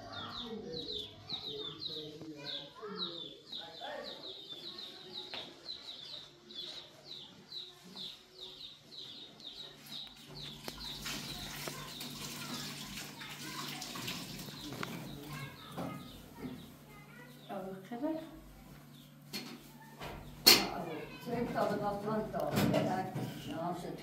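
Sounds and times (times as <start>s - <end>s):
small bird chirping: 0.0s - 12.8s
tap running water into sink: 11.0s - 15.1s.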